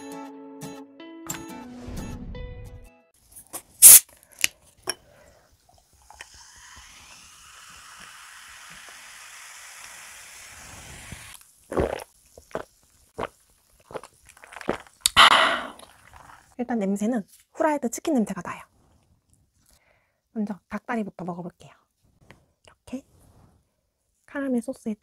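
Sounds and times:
cola fizzing: 5.7s - 16.6s
person gulping: 11.7s - 16.5s
cola poured over ice: 15.7s - 16.5s.

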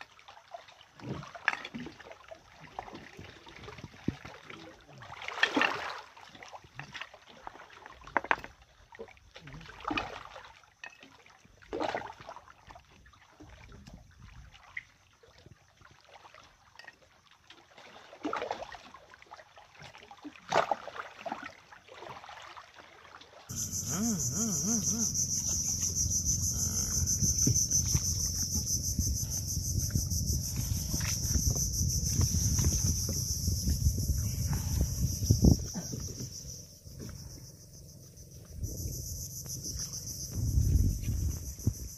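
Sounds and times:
low steady rumble: 23.5s - 35.7s
high-pitched insect drone: 23.5s - 41.9s.

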